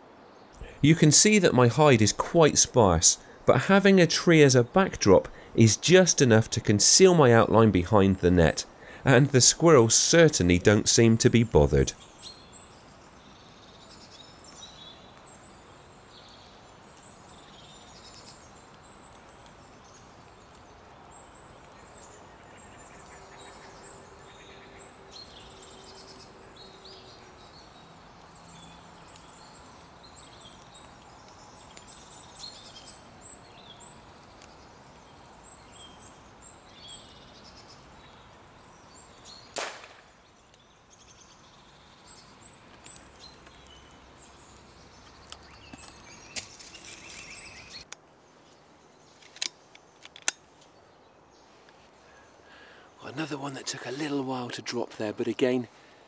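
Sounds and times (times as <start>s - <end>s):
faint outdoor hush: 0.0s - 56.0s
small birds chirping: 0.2s - 56.0s
air rifle shot: 39.6s - 40.2s.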